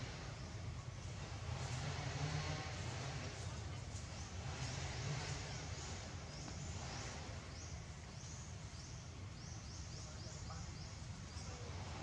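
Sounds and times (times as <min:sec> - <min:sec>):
low outdoor rumble: 0:00.0 - 0:12.0
birds chirping: 0:03.4 - 0:12.0.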